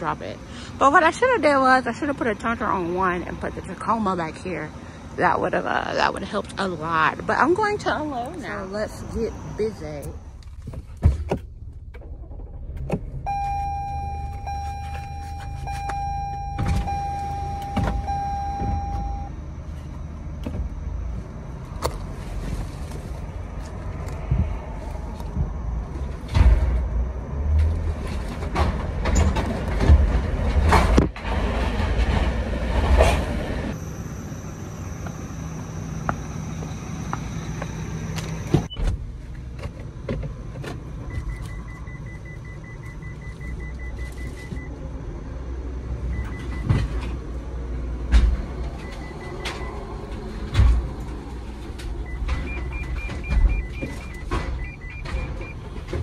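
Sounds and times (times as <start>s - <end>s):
car engine running: 6.2s - 26.4s
knocks and clunks: 10.5s - 19.3s, 25.2s - 33.4s, 48.0s - 56.0s
car warning chime: 13.3s - 19.6s, 41.1s - 44.7s, 46.1s - 46.7s, 48.8s - 49.8s, 52.1s - 55.6s.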